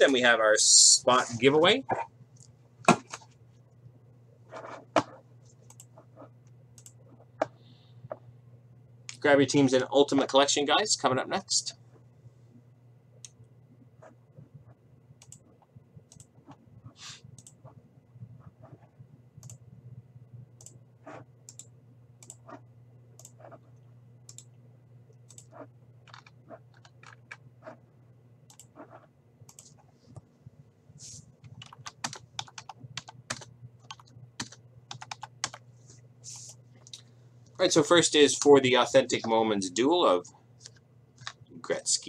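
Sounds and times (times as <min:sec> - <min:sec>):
faint low hum: 0:00.0 - 0:42.0
computer keyboard typing: 0:25.3 - 0:27.8, 0:31.4 - 0:35.6.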